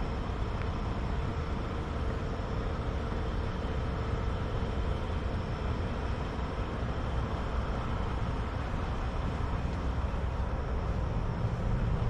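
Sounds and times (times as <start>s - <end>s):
distant vehicles rumbling: 7.8s - 12.0s.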